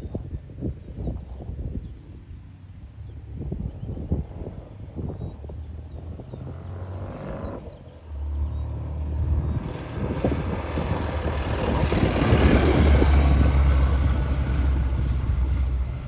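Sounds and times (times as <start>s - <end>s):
motorcycle engine passing by: 4.4s - 16.0s.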